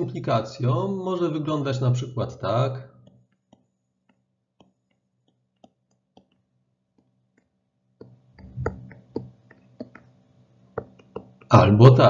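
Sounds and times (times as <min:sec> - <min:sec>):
stylus tapping on tablet: 0:03.0 - 0:11.5.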